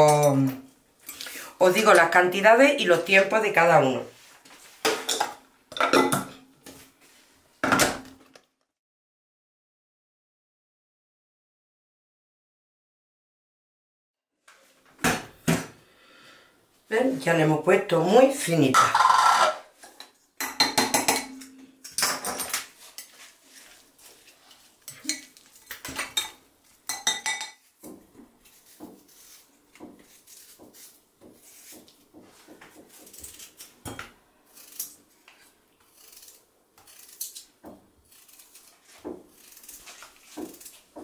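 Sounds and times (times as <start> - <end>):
knife slicing raw potato: 27.9 - 32.1, 34.5 - 41.0.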